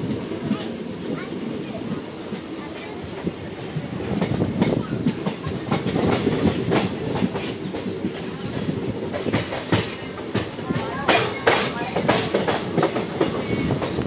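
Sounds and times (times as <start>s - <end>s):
low train rumble: 0.0s - 14.0s
train wheels clattering on rails: 0.0s - 14.0s.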